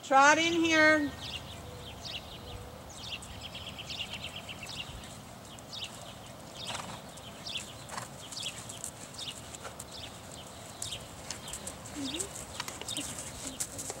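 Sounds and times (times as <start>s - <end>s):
hoofbeats on sand: 3.1s - 14.0s.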